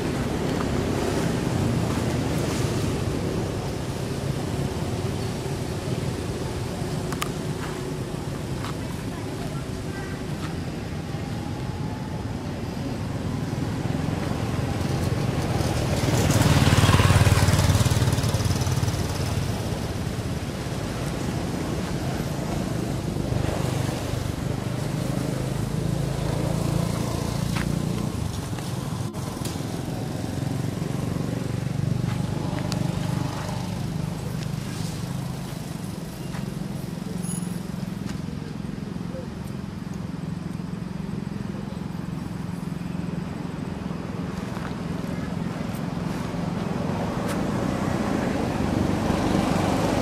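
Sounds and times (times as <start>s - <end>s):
vehicle passing: 0.0s - 37.2s
traffic hum: 0.0s - 50.0s.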